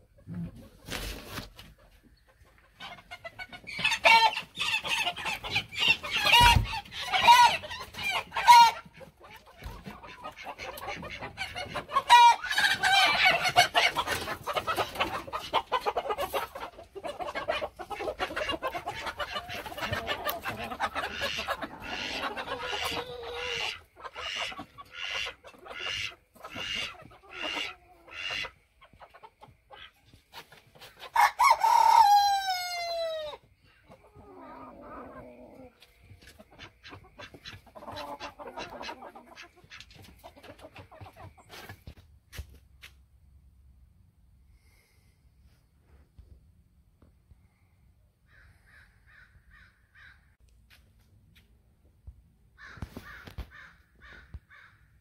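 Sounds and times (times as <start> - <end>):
chickens squawking and clucking: 0.0 - 42.0, 52.5 - 55.0
rooster crowing: 31.2 - 33.3.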